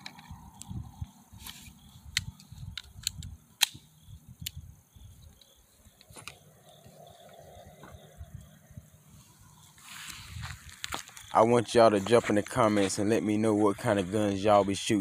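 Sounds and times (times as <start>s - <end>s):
handgun and boxes clicking: 1.5s - 4.6s.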